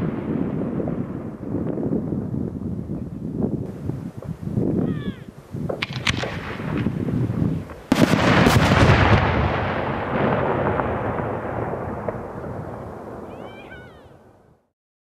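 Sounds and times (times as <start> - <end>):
firework bang: 0.0 - 2.3, 5.6 - 13.8
rumbling echo: 5.8 - 14.4.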